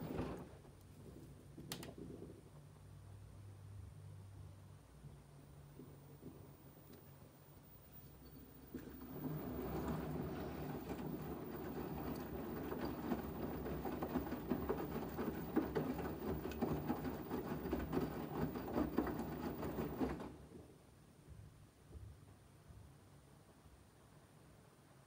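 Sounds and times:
washing machine drum sloshing: 8.6 - 20.5.

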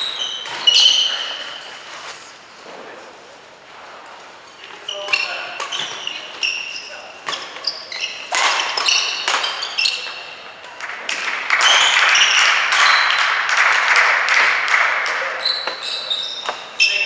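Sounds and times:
shoes squeaking on floor: 0.0 - 2.4, 4.5 - 10.4, 11.6 - 13.2, 15.3 - 17.0
racket striking shuttlecock: 8.2 - 15.8.

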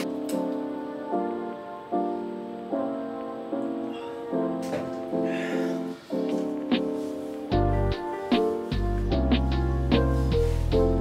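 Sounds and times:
mellow background music chords: 0.0 - 11.0.

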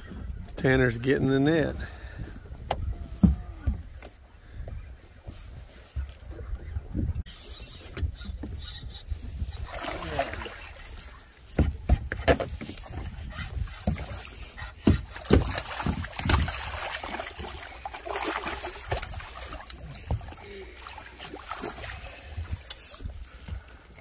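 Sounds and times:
wind buffeting microphone: 1.7 - 17.7
water slapping against boat hull: 9.6 - 23.7.

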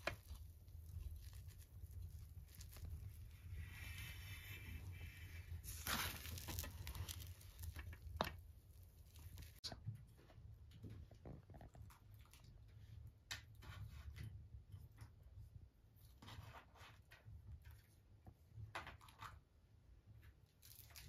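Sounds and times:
hands rustling food: 0.0 - 9.6.

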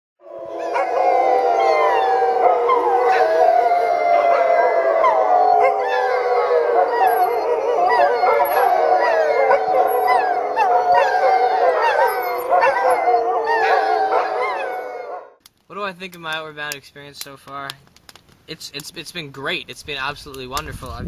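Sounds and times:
dogs howling and yipping: 0.2 - 15.4.

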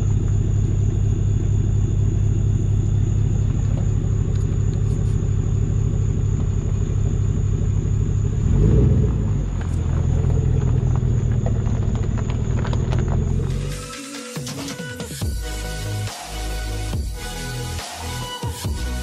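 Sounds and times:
truck engine rumbling: 0.0 - 14.0
engine revving: 7.9 - 14.0.

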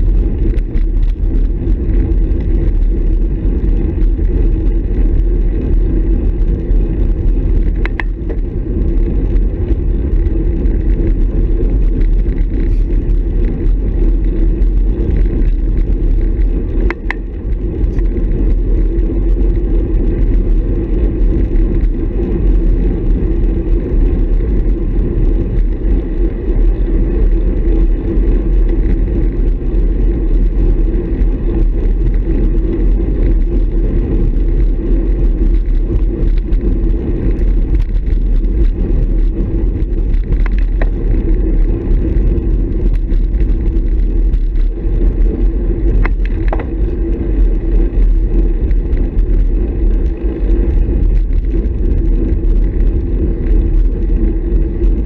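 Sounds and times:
bicycle tyre noise: 0.0 - 55.0
wind rush: 0.0 - 55.0.

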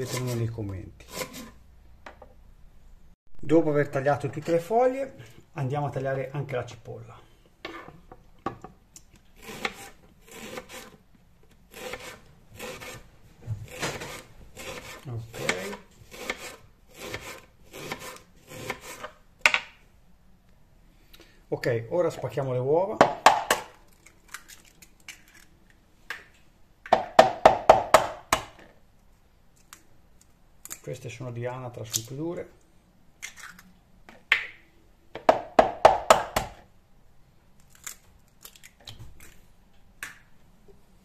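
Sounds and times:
knife slicing onion on board: 9.4 - 11.0, 11.7 - 13.0, 13.6 - 19.2.

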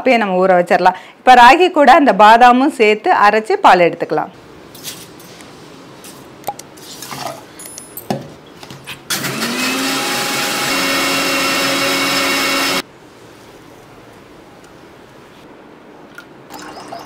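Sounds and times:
mixer grinder motor whine: 9.1 - 12.8.

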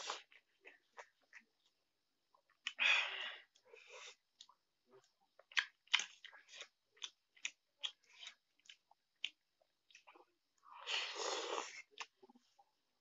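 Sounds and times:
person chewing noodles: 3.4 - 12.4.

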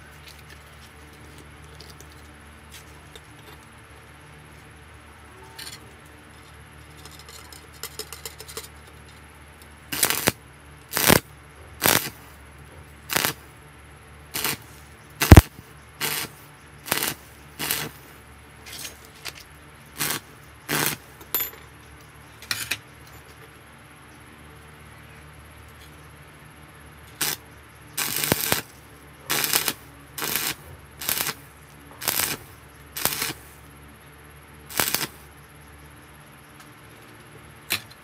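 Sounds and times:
arc welder crackling bursts: 9.9 - 12.4, 13.1 - 13.6, 14.3 - 18.3, 19.9 - 21.2, 27.2 - 33.8, 34.6 - 35.4.

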